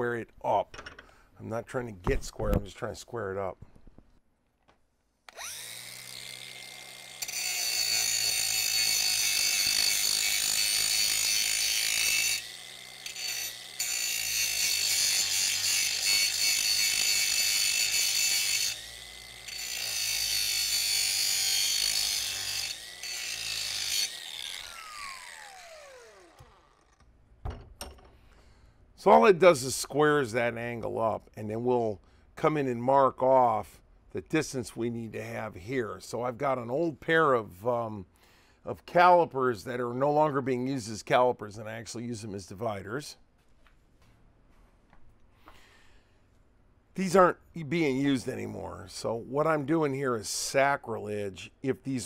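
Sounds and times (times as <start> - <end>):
angle grinder grinding steel: 5.3 - 27.0
grinder motor whine: 5.3 - 27.0.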